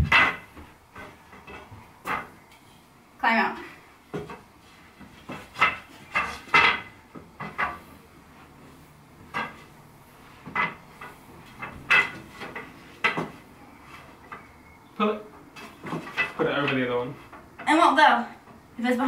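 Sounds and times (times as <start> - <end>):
wooden slats knocking: 0.0 - 2.4, 10.4 - 13.4.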